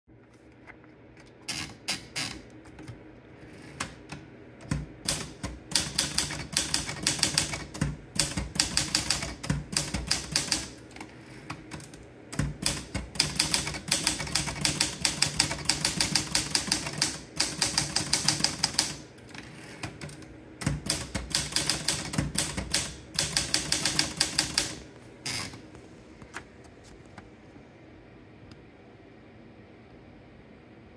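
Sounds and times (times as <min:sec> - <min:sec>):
typewriter keystroke clacks: 0:03.8 - 0:10.8, 0:11.5 - 0:19.0, 0:19.8 - 0:24.8
typewriter clicks: 0:03.8 - 0:19.0, 0:19.8 - 0:25.5.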